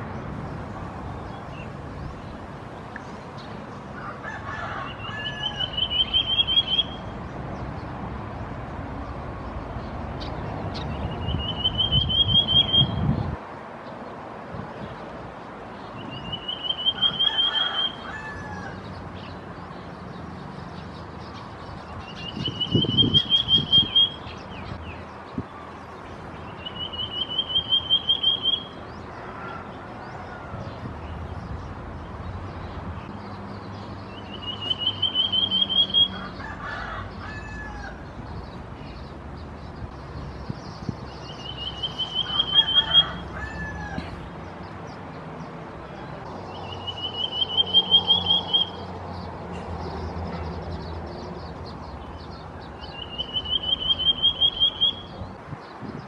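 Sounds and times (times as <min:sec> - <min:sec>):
bird trilling: 0:04.0 - 0:07.1, 0:10.7 - 0:13.1, 0:16.0 - 0:18.8, 0:22.1 - 0:24.5, 0:26.6 - 0:28.8, 0:34.2 - 0:38.0, 0:41.2 - 0:44.0, 0:46.5 - 0:48.9, 0:52.8 - 0:55.2.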